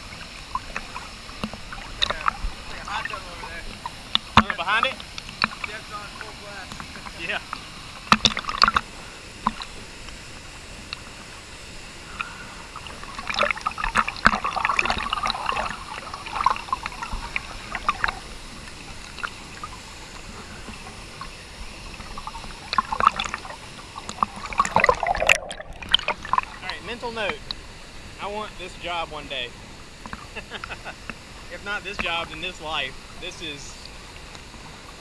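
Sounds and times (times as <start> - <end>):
rush of falling water: 0.0 - 35.0
water splashing and lapping: 0.0 - 35.0.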